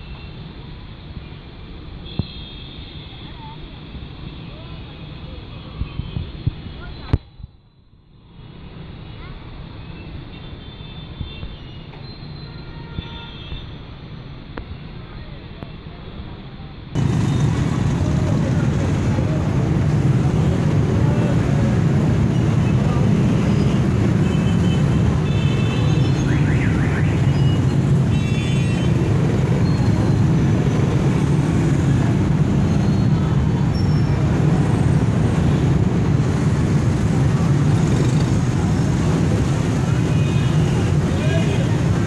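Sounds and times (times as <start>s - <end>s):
traffic engine rumble: 13.7s - 42.0s.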